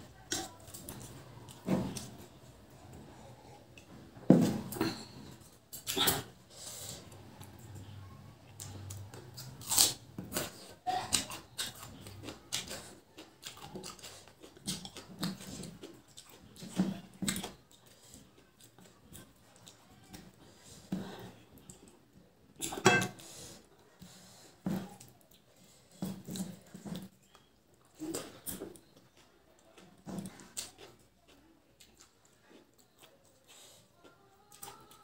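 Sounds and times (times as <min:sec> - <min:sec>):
chewing: 0:00.0 - 0:04.0, 0:04.7 - 0:35.0.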